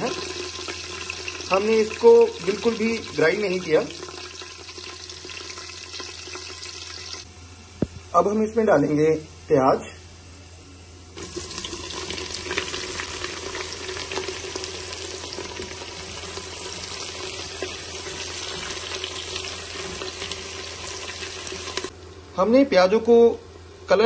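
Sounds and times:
onions sizzling in oil: 0.0s - 7.3s, 10.9s - 22.0s.

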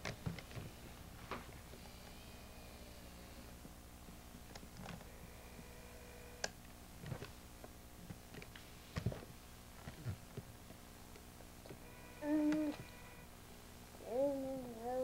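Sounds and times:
baby vocal call: 14.0s - 15.0s.

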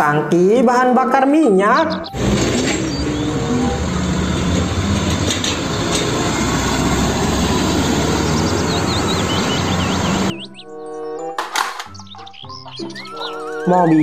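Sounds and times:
music: 0.0s - 5.5s, 8.6s - 14.0s
road noise: 1.7s - 12.2s
truck engine rumble: 2.0s - 10.6s.

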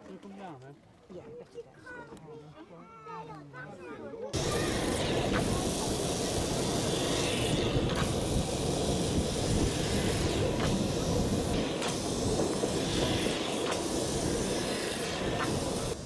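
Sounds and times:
tram wheels rumbling on rails: 4.4s - 16.0s.

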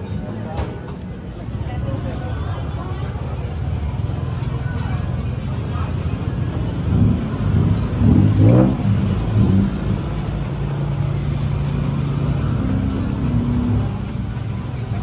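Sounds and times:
vehicle engine revving: 6.3s - 14.5s.

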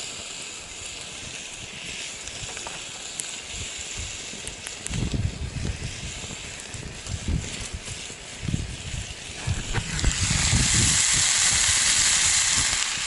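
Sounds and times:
fish sizzling in a pan: 0.0s - 13.0s
wind buffeting microphone: 3.4s - 13.0s.

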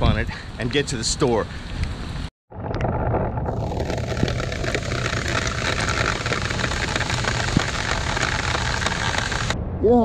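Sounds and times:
low rumble: 2.5s - 10.0s
rain falling on pavement: 4.0s - 9.6s.

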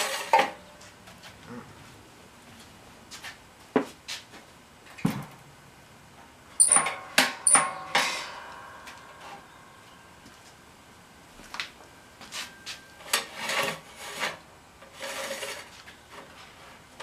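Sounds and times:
sharp metal clanks: 6.6s - 9.6s.

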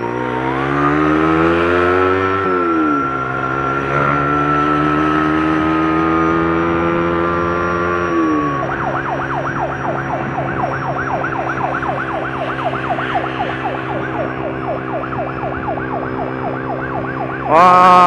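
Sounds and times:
engine hum: 0.0s - 18.0s
siren in fast yelp mode: 0.0s - 18.0s
steady siren tone: 0.0s - 18.0s.

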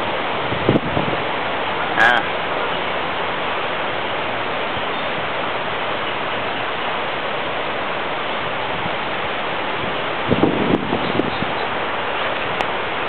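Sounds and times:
steady rushing noise: 0.0s - 13.0s.

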